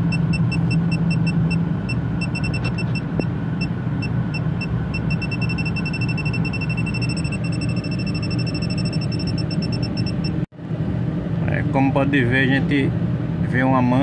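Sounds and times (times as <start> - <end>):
steady low hum: 0.0 - 14.0
high-pitched electronic beeping: 0.1 - 10.4.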